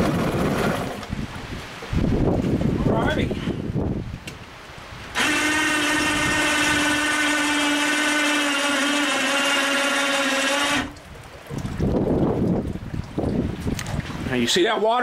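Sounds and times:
electric hoist motor whining: 5.1s - 11.0s.

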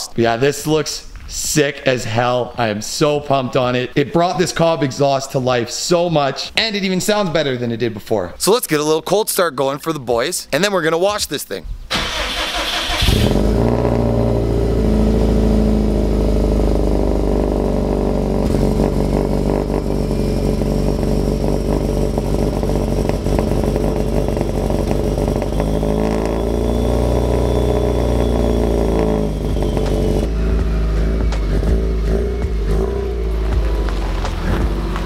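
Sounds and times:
car engine idling: 11.9s - 35.0s.

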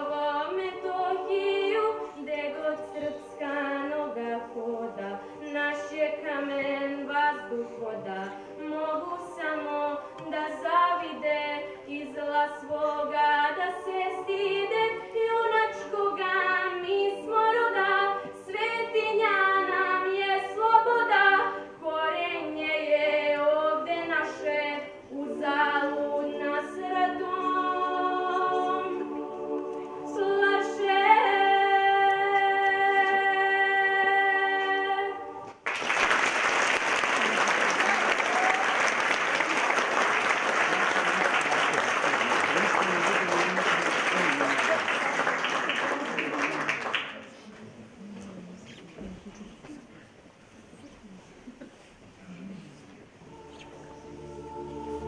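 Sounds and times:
children's choir singing: 0.0s - 35.7s, 53.1s - 55.0s
applause: 35.6s - 47.3s.

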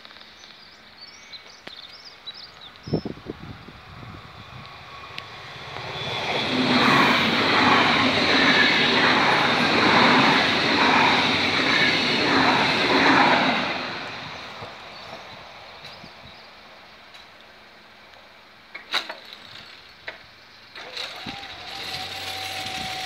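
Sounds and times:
electric train passing: 3.0s - 18.7s, 19.5s - 23.0s
wheels clattering over rails: 4.7s - 15.2s, 18.7s - 23.0s.

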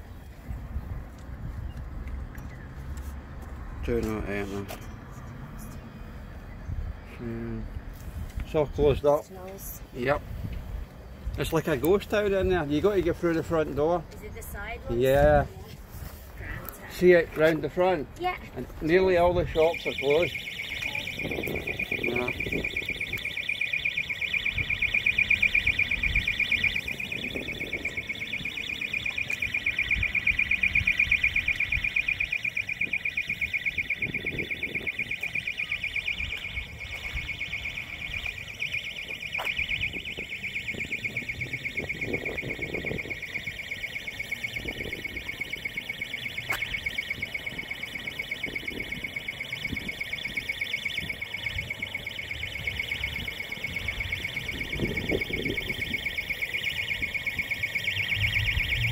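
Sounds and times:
alarm pulsing tone: 18.9s - 58.9s.

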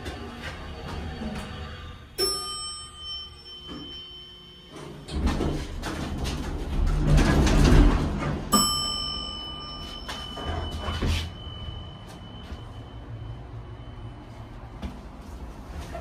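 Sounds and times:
electronic chime: 2.2s - 5.1s, 8.5s - 14.8s
elevator door sliding open: 4.7s - 11.8s.

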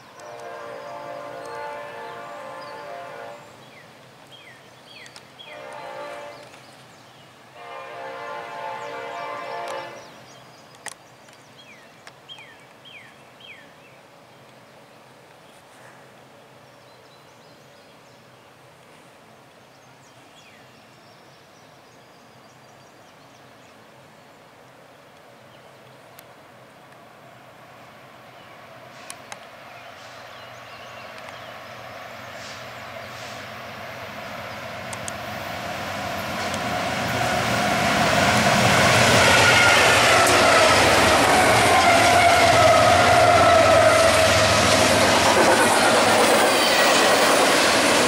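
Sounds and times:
train rumble: 0.0s - 3.7s, 28.9s - 48.0s
locomotive air horn blasts: 0.2s - 3.6s, 5.5s - 6.6s, 7.6s - 10.2s, 39.0s - 44.7s.

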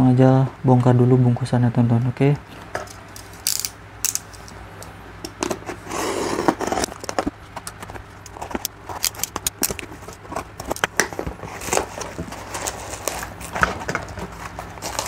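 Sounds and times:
steady low hum: 0.0s - 15.0s
knife slitting packing tape: 3.2s - 4.3s, 8.3s - 10.9s
plastic crackling: 6.8s - 15.0s.

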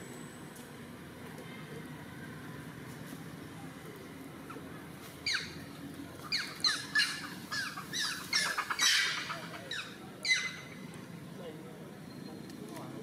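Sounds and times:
high-pitched animal calls: 6.3s - 10.7s.

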